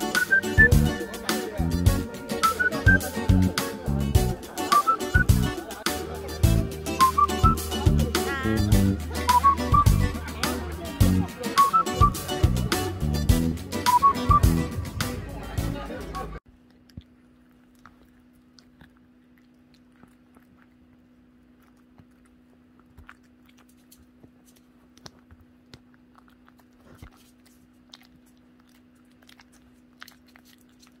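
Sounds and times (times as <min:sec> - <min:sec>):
dog teeth crunching food: 0:16.5 - 0:31.0.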